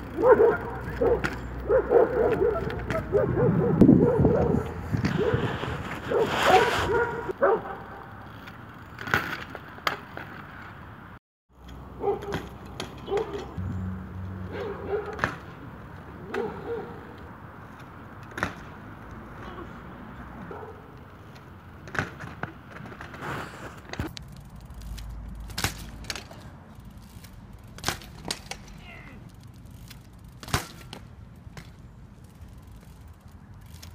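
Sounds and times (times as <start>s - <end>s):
bike frame and chain clattering: 0.0s - 3.4s, 4.0s - 10.7s, 11.6s - 18.7s, 20.9s - 33.9s
bike landing on asphalt: 15.0s - 16.7s, 18.2s - 19.0s, 21.5s - 28.8s, 29.6s - 33.9s.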